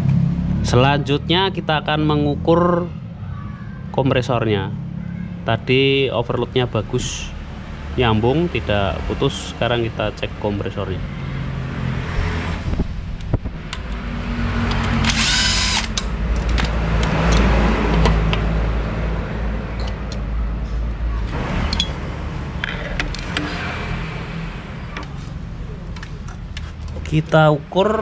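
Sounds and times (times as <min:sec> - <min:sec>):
parts clicking and rattling: 0:14.6 - 0:18.5, 0:21.6 - 0:22.0, 0:22.6 - 0:23.9
cordless drill whirring: 0:15.0 - 0:16.1.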